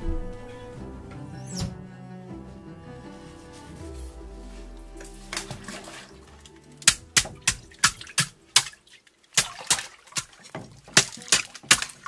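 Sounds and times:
water splashing: 3.4s - 12.0s
ice being chopped: 6.8s - 8.8s, 9.4s - 12.0s.

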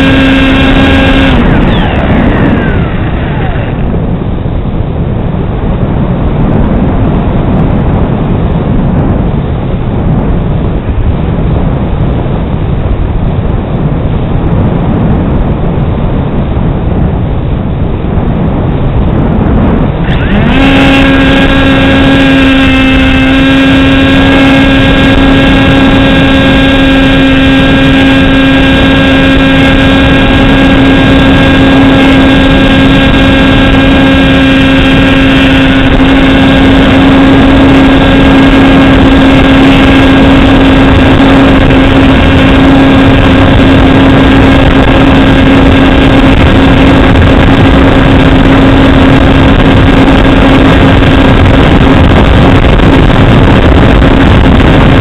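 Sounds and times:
model plane motor humming: 0.0s - 5.1s, 19.0s - 55.0s
rush of air: 0.0s - 55.0s.

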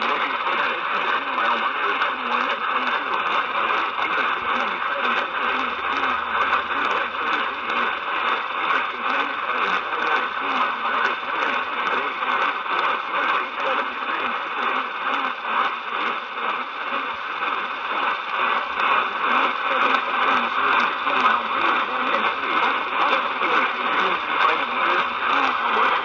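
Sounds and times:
crackling interference clicks: 0.0s - 26.0s
muffled radio station audio: 0.0s - 26.0s
radio static hiss: 0.0s - 26.0s.

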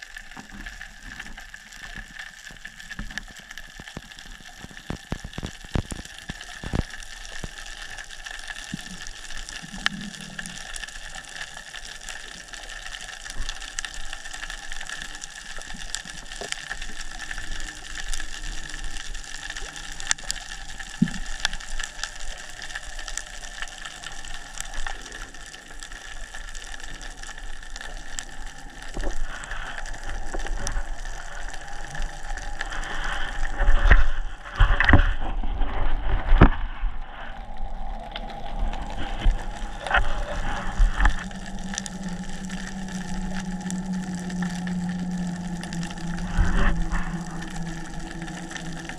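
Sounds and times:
sharp crackling clicks: 0.0s - 35.1s, 37.5s - 48.9s
low rumbling: 26.0s - 48.9s
underwater hiss: 37.0s - 48.9s.

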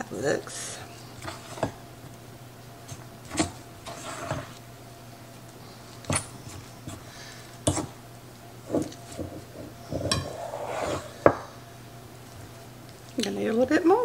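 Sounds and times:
dough scraping and squishing: 1.1s - 1.8s, 2.8s - 4.6s, 8.6s - 11.2s.

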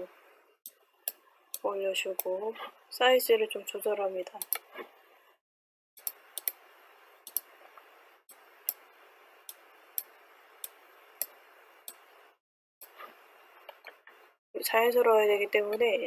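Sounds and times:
computer mouse clicking: 4.4s - 4.7s, 6.0s - 6.6s, 7.2s - 7.9s, 8.6s - 8.9s, 9.5s - 12.1s.

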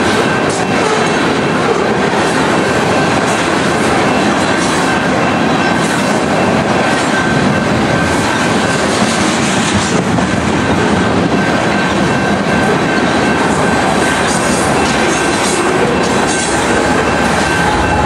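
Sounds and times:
train wheels rumbling on rails: 0.0s - 18.0s
high-pitched ring: 11.3s - 18.0s.

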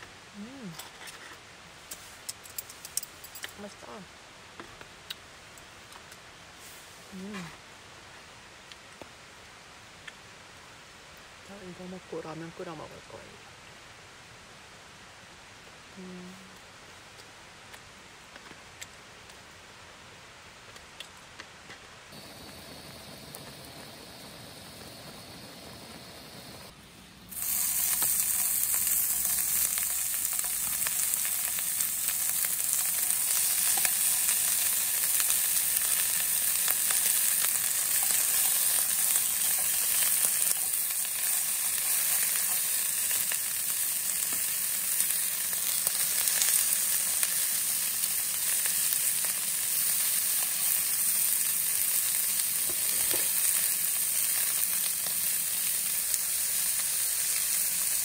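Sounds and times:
beef sizzling in frying pan: 22.1s - 58.0s.

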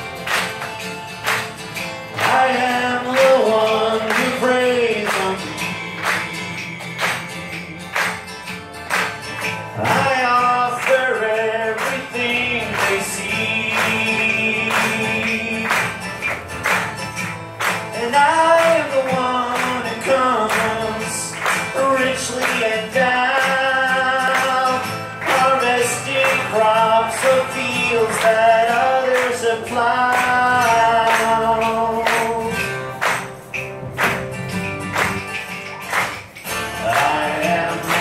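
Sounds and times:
hand percussion beat: 0.0s - 38.0s
strummed acoustic guitars: 0.0s - 38.0s
man singing: 2.2s - 8.1s, 9.8s - 16.0s, 18.0s - 33.0s, 36.7s - 38.0s.

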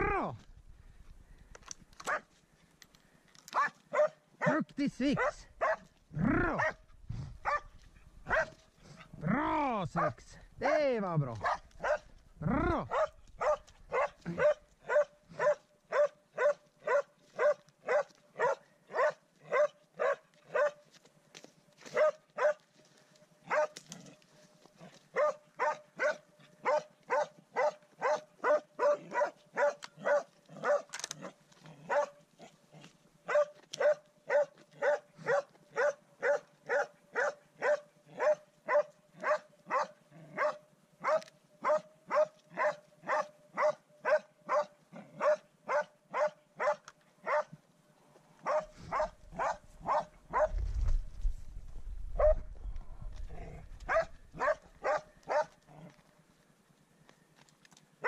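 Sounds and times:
dog barking: 2.0s - 2.3s, 3.5s - 5.9s, 6.5s - 6.8s, 7.4s - 9.0s, 10.0s - 10.8s, 11.4s - 12.1s, 12.8s - 20.8s, 21.9s - 22.6s, 23.5s - 23.8s, 25.1s - 32.2s, 33.2s - 47.6s, 48.4s - 50.6s, 52.2s - 52.5s, 53.9s - 55.6s.

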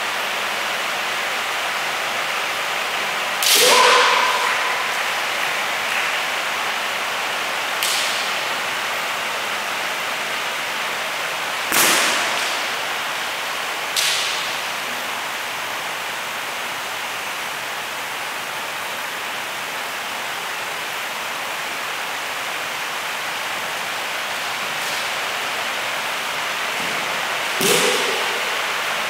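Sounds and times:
steady hiss: 0.0s - 29.0s
person shouting: 3.4s - 5.0s
bamboo swords striking armour: 11.7s - 12.7s, 27.6s - 28.4s.

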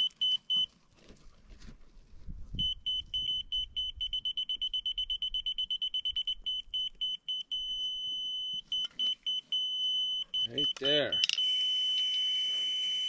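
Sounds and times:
high-pitched beeping: 2.6s - 13.0s.

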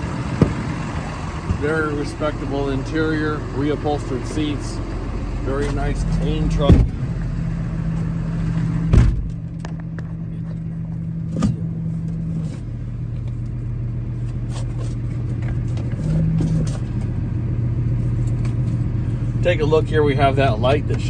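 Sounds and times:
diesel engine idling: 0.0s - 21.0s.

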